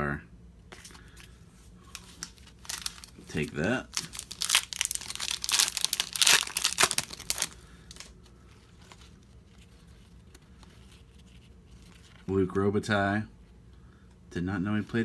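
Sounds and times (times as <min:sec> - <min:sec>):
cards rustling: 0:00.7 - 0:12.4
foil wrapper crinkling: 0:01.9 - 0:12.3.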